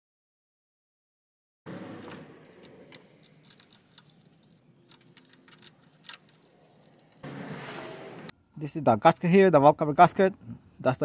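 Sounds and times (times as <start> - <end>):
light metallic clicks and clinks: 2.5 - 7.2.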